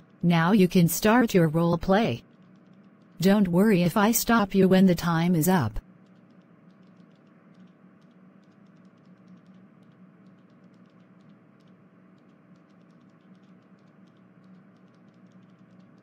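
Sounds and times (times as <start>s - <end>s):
faint background hum: 0.0s - 16.0s
soft irregular clicks: 2.2s - 3.2s, 5.8s - 16.0s.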